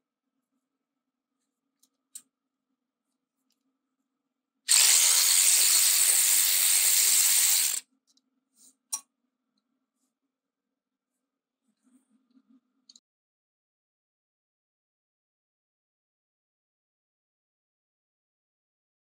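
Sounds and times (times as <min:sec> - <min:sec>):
cordless ratchet running: 0:04.7 - 0:07.8.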